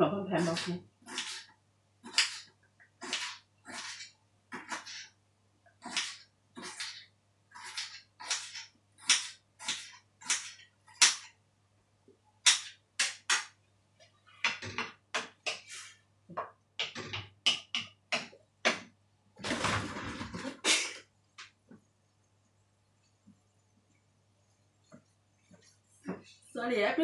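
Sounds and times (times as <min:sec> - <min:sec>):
faint electrical hum: 0:00.0 - 0:27.0
wooden spatula scraping a wok: 0:00.4 - 0:05.2, 0:15.5 - 0:16.0.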